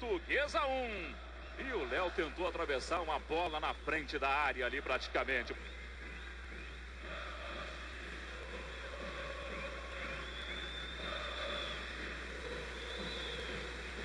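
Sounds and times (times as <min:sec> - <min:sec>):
fans singing: 0:00.0 - 0:14.0
stadium crowd roar: 0:00.0 - 0:14.0
thin high whistle: 0:09.5 - 0:14.0.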